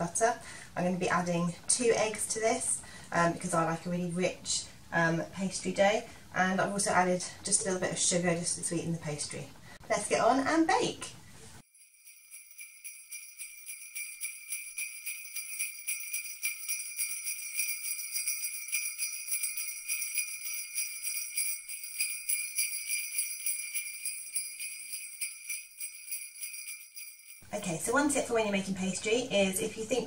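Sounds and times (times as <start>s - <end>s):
jingle bells shaken: 11.6s - 27.6s.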